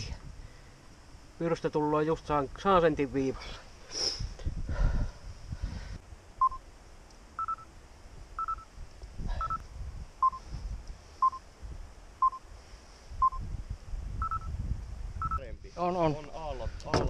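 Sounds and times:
short electronic beeps: 6.4s - 6.6s, 7.4s - 7.7s, 8.4s - 8.7s, 9.4s - 9.6s, 10.2s - 10.4s, 11.2s - 11.4s, 12.2s - 12.4s, 13.2s - 13.4s, 14.2s - 14.5s, 15.2s - 15.5s.

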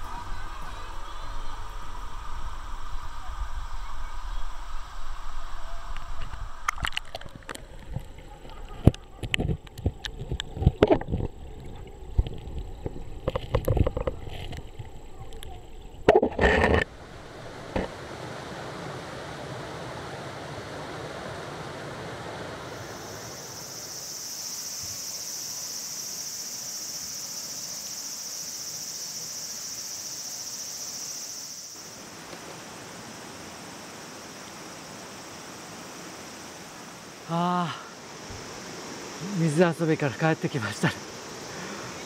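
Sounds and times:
river rushing over rocks: 16.8s - 23.7s
high-pitched insect drone: 22.7s - 42.0s.

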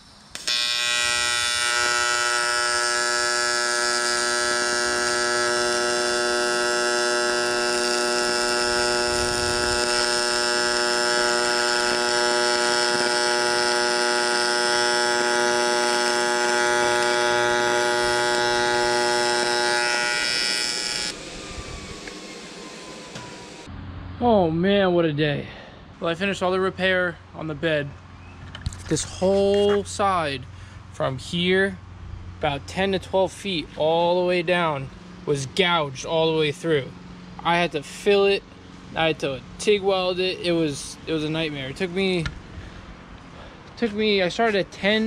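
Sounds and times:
welding arc buzzing: 0.0s - 23.7s.

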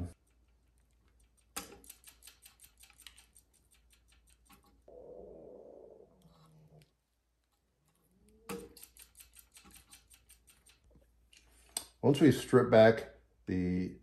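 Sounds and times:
rapid faint clicks: 0.1s - 4.9s, 8.3s - 12.0s
wire strippers snipping: 1.1s - 4.7s, 8.4s - 10.9s
faint steady hum: 4.0s - 9.0s.

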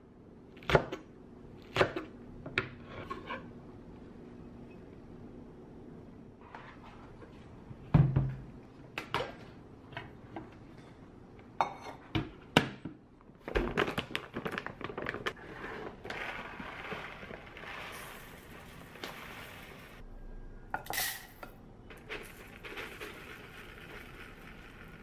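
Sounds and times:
rice pouring into measuring cup: 16.0s - 19.9s, 22.1s - 25.0s.

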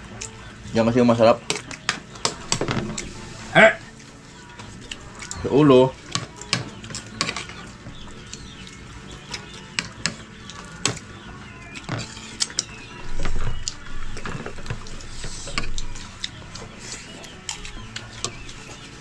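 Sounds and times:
dishes and utensils clinking: 5.2s - 7.7s.

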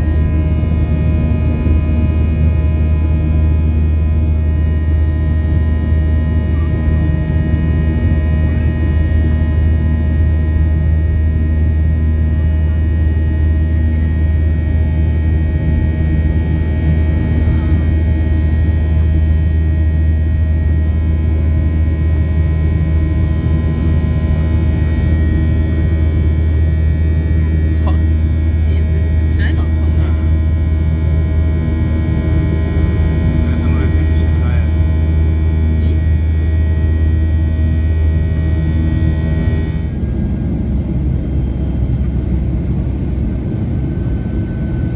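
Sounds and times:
low engine drone: 0.0s - 44.9s
whining tones: 35.1s - 44.9s.

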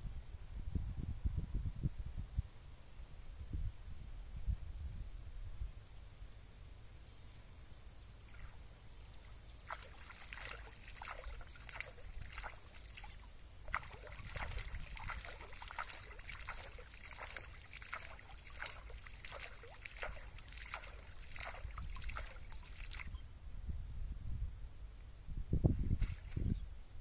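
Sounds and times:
water splashing and sloshing: 8.2s - 23.2s, 25.9s - 26.5s.

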